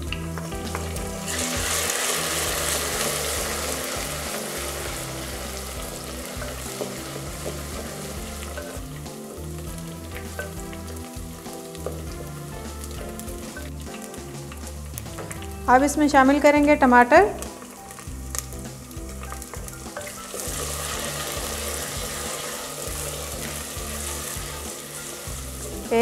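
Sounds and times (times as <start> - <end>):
paste sizzling in hot oil: 0.0 - 26.0
wooden spoon stirring: 0.4 - 15.6.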